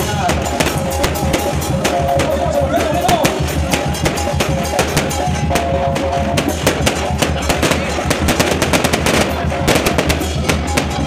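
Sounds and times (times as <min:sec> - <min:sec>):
festival music with drums and bass: 0:00.0 - 0:11.0
rapid sharp cracks: 0:04.0 - 0:11.0.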